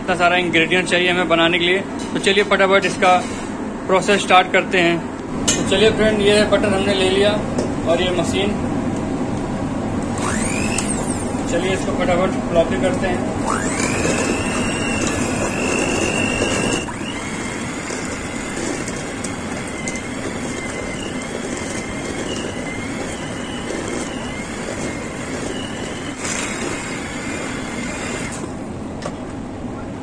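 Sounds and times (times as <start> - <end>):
electric hand mixer whining: 10.2 - 11.5, 13.4 - 28.6.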